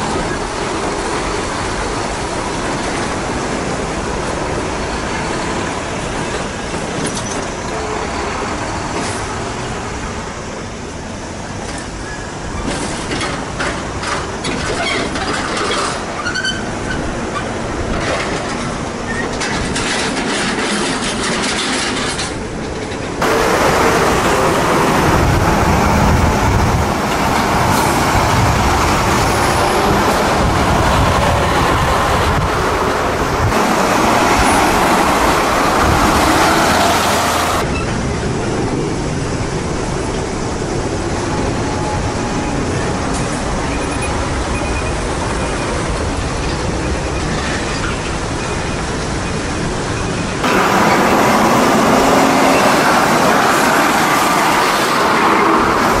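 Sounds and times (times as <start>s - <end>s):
heavy trucks driving past: 23.2s - 39.6s, 40.9s - 56.0s.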